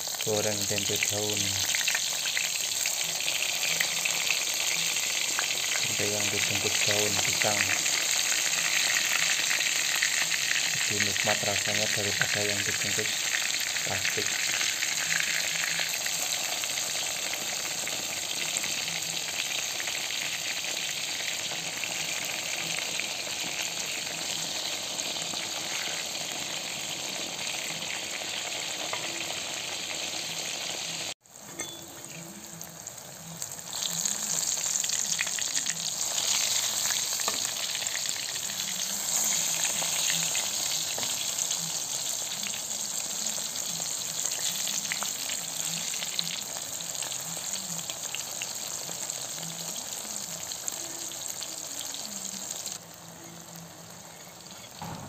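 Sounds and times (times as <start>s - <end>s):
food sizzling in hot oil: 0.0s - 55.0s.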